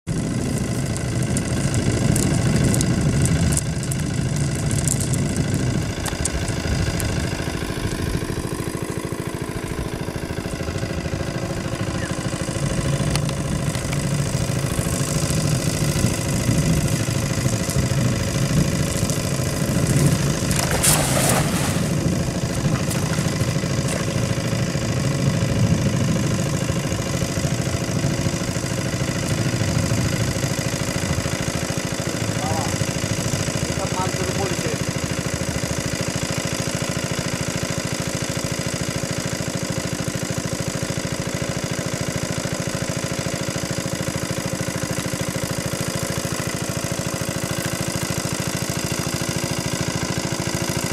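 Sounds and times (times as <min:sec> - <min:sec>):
engine idling: 0:00.0 - 0:50.9
net splashing into water: 0:19.8 - 0:24.0.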